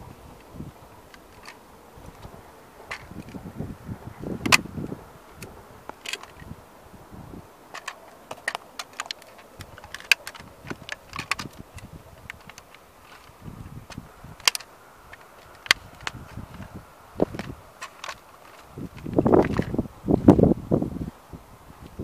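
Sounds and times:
plastic model creaking and snapping: 1.1 - 2.3, 4.4 - 4.6, 5.4 - 6.5, 7.7 - 19.8.

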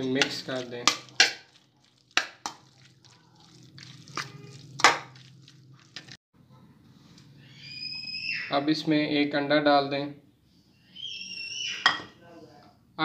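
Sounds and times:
wet squishing of mixing: 0.0 - 6.2.

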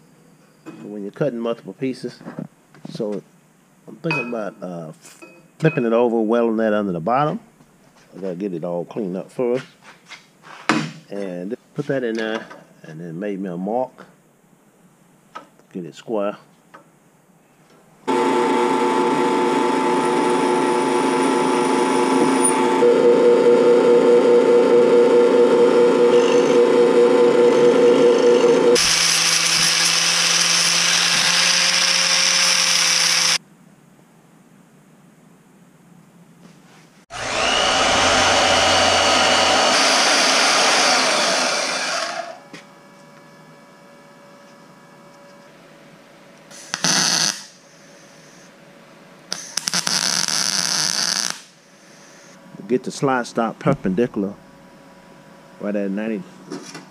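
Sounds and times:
drill press drilling steel: 18.1 - 23.0, 25.7 - 33.4, 37.1 - 42.4
angle grinder grinding steel: 18.2 - 23.0, 25.6 - 33.4, 37.1 - 42.5
welding arc sizzling: 28.8 - 33.4, 46.5 - 48.5, 49.3 - 52.4.

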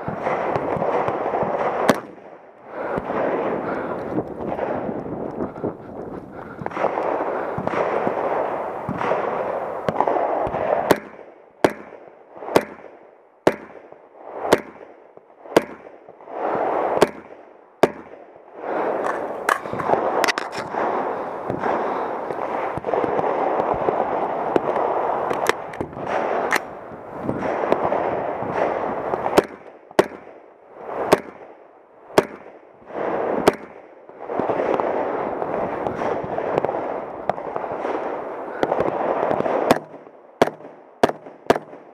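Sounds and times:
rifle shots: 0.0 - 5.2, 6.6 - 41.9
steady rushing noise: 0.0 - 13.0, 15.4 - 31.4.

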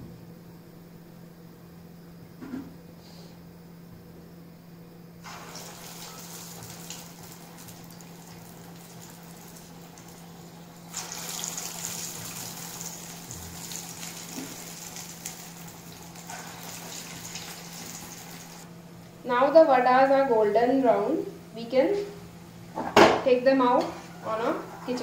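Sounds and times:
batter sizzling in hot oil: 5.2 - 18.7.

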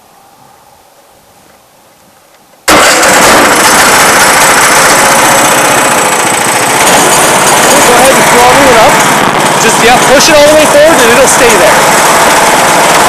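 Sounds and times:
small gasoline engine starting and running: 2.6 - 13.0.

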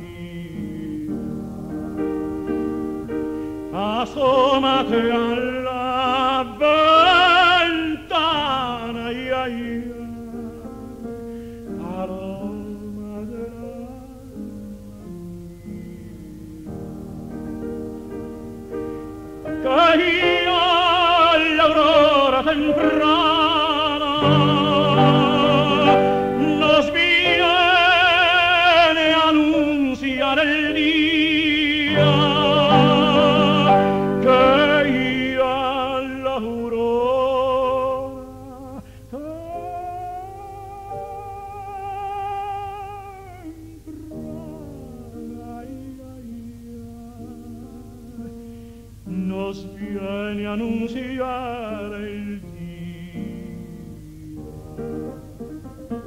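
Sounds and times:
operatic tenor singing: 0.0 - 2.8, 3.7 - 18.4, 19.5 - 55.7.

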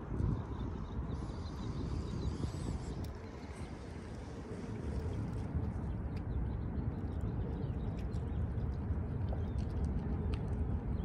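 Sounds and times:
wind rumble on microphone: 0.0 - 11.0
light clicks of water: 2.9 - 11.0.

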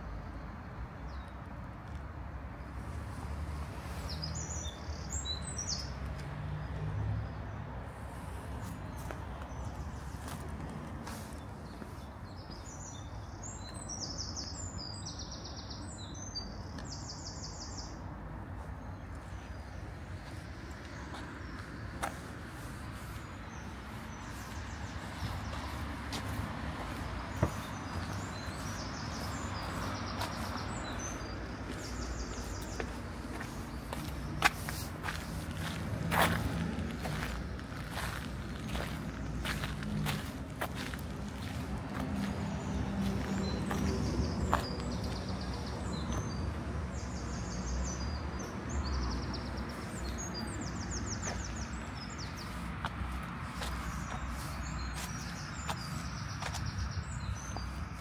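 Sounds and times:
distant traffic hum: 0.0 - 58.0
songbirds trilling: 6.6 - 58.0
small songbird singing: 11.1 - 18.0, 18.8 - 36.4.

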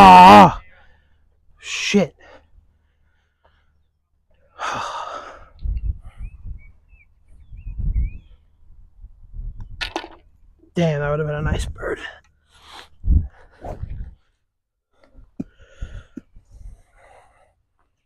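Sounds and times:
person sighing heavily: 4.6 - 5.6.

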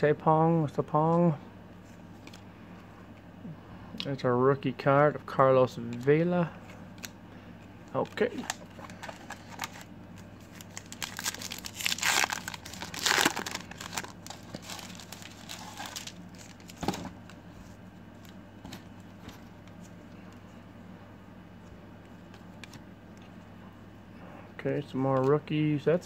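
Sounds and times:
foil wrapper crinkling: 7.9 - 17.4.

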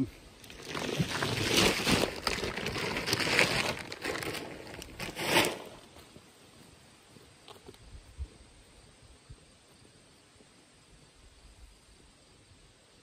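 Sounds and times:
crinkling and rustling: 0.4 - 6.2.

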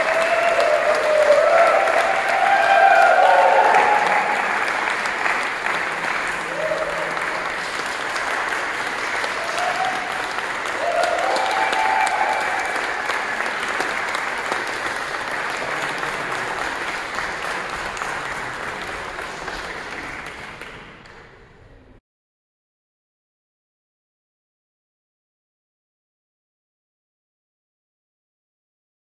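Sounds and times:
audience applauding: 0.0 - 21.4.

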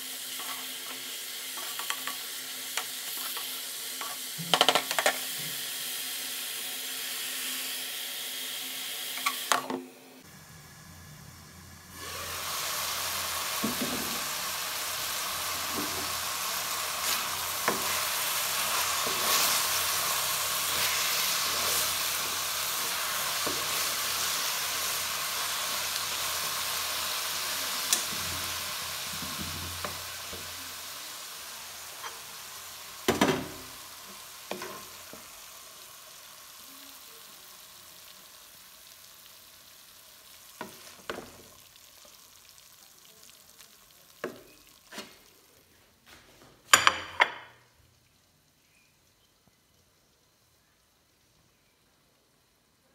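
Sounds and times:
greens sizzling in a pan: 0.0 - 52.9.

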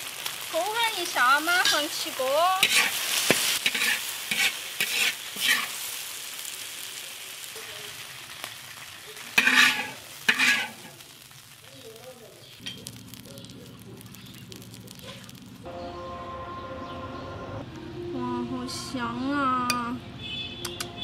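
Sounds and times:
stir-fry sizzling in a wok: 0.0 - 15.9
spatula scraping a wok: 1.6 - 6.0, 9.2 - 11.1.

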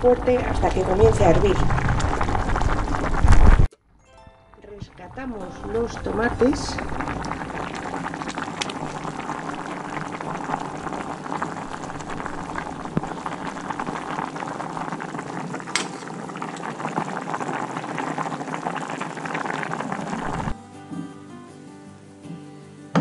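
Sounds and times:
pot boiling and bubbling: 0.0 - 3.7, 4.6 - 20.6.

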